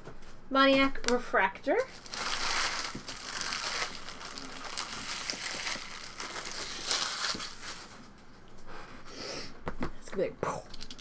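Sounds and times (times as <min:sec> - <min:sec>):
foil wrapper crinkling: 0:01.8 - 0:08.0, 0:10.7 - 0:11.0.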